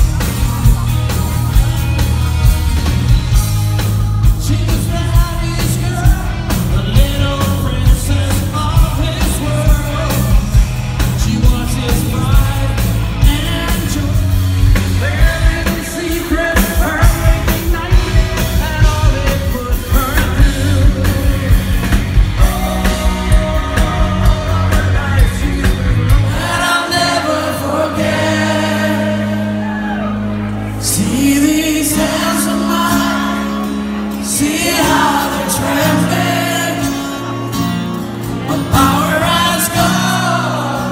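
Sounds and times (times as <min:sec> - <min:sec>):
steady drum beat: 0:00.0 - 0:29.0
electric guitar: 0:00.0 - 0:40.9
male singer: 0:03.2 - 0:30.2, 0:30.8 - 0:40.9.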